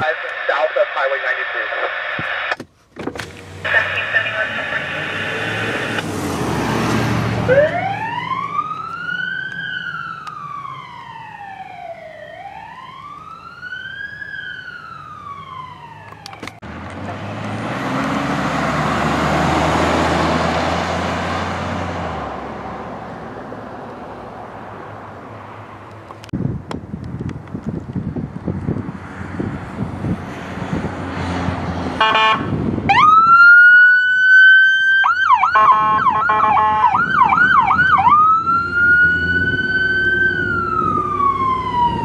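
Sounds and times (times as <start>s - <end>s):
passing vehicle: 3.1s - 42.0s
electronic siren wailing: 3.6s - 6.0s, 7.4s - 16.6s, 32.0s - 42.0s.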